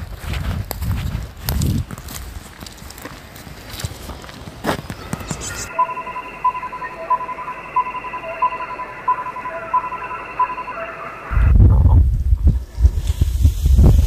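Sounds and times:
short electronic beeps: 5.0s - 11.5s.

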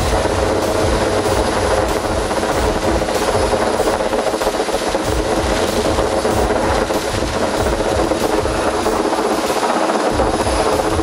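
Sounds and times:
helicopter hovering: 0.0s - 11.0s.

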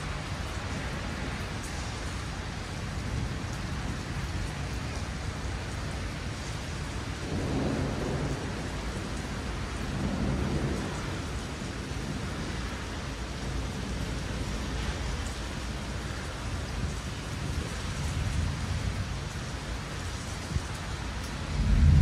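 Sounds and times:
steady rain falling: 0.0s - 22.0s
thunder rolling: 7.2s - 12.2s, 21.4s - 22.0s.

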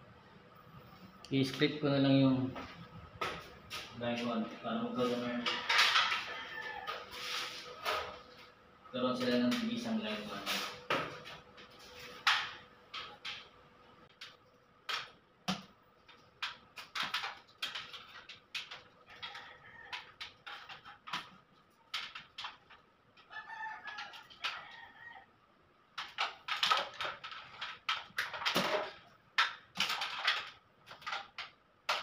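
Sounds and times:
rooster crowing: 5.3s - 7.3s, 19.1s - 20.2s, 23.3s - 25.3s
clicks and rustles: 9.2s - 24.8s, 25.9s - 32.0s.

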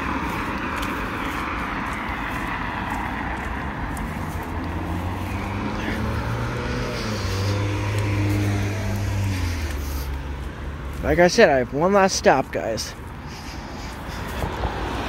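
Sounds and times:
low engine drone: 0.0s - 10.6s
cars and tyres passing: 0.0s - 15.0s.

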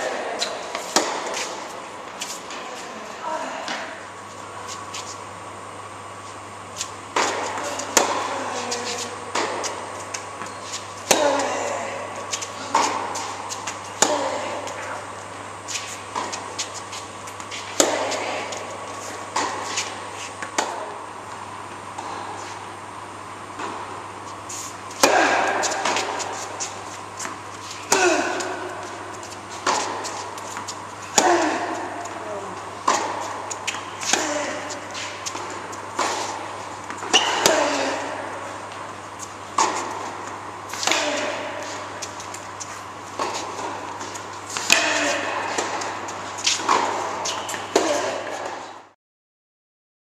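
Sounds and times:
tennis ball struck by racket: 0.4s - 1.6s, 7.1s - 11.5s, 17.4s - 18.6s, 19.3s - 21.0s, 25.0s - 32.2s, 32.8s - 38.8s, 39.5s - 42.5s, 43.2s - 48.7s.

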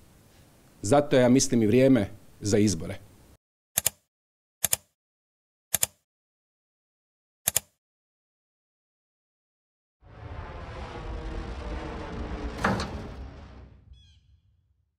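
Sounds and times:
sharp double clicks: 3.8s - 4.0s, 4.6s - 4.9s, 5.7s - 6.0s, 7.4s - 7.8s.

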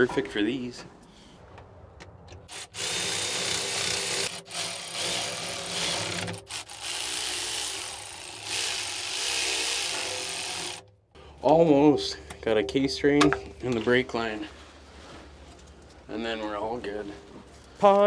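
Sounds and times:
power tool rasping whir: 2.5s - 10.8s.

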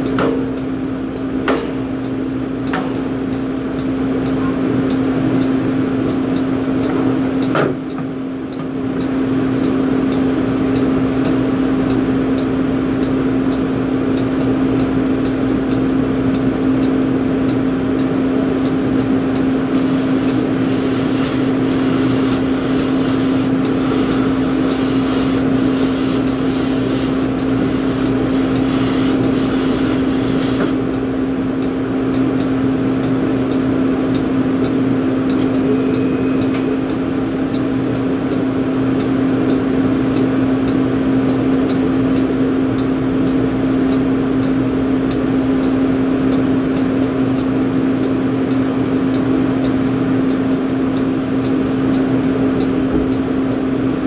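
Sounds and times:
drilling rig machinery drone: 18.8s - 31.2s
pressure washer spraying: 19.8s - 30.8s.

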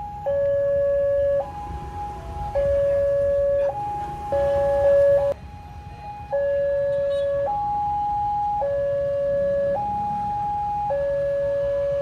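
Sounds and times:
level crossing alarm two tones: 0.0s - 5.4s.

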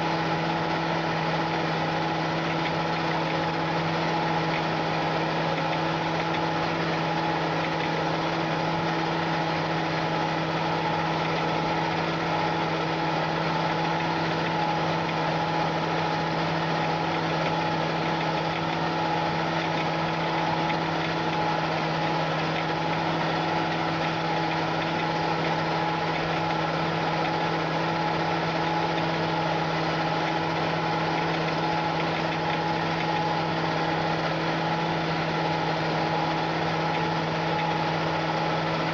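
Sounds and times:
tractor diesel engine humming: 0.0s - 38.9s.

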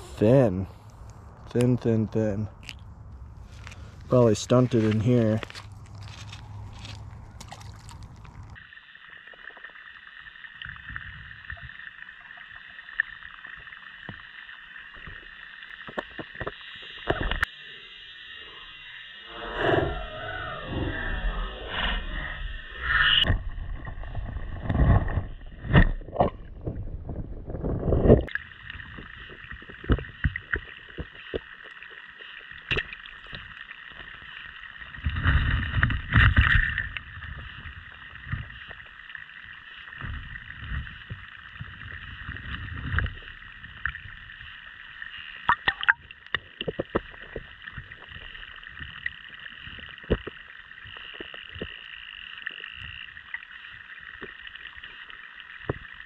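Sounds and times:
muffled underwater water hiss: 0.0s - 2.5s, 8.1s - 23.3s, 28.3s - 56.0s
low rumbling water swells: 19.2s - 25.7s.

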